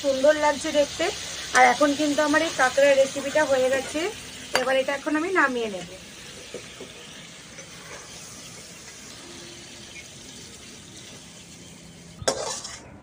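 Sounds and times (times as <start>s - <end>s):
curry sizzling in a wok: 0.0s - 12.9s
metal ladle scraping a wok: 12.2s - 13.0s.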